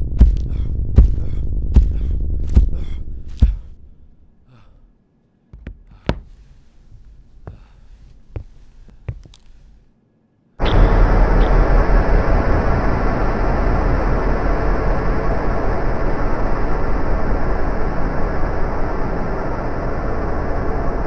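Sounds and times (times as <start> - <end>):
regular heartbeat-like thump: 0.0 - 3.8
low rumble: 0.0 - 4.4, 10.6 - 21.0
sudden loud noise: 10.6 - 21.0.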